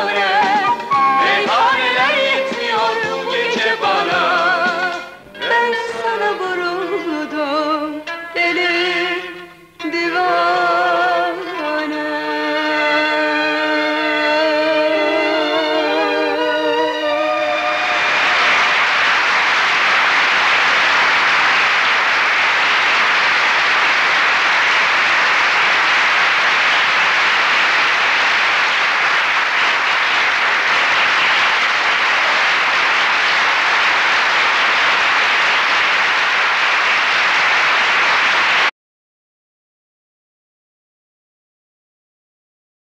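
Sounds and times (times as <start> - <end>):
large audience applauding: 0.0 - 5.2, 15.3 - 38.7
stage music: 0.0 - 6.0, 13.2 - 38.7.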